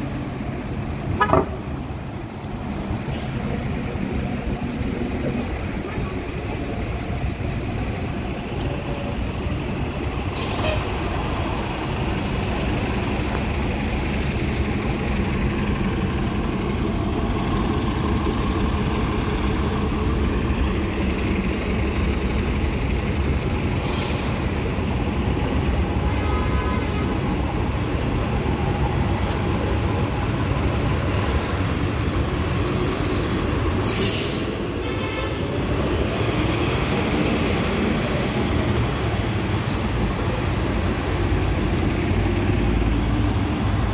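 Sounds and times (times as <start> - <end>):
bus diesel engines idling: 0.0 - 43.9
bus engine pulling away: 0.0 - 43.9
air brake hisses: 10.2 - 10.9, 23.8 - 24.6, 33.7 - 34.8.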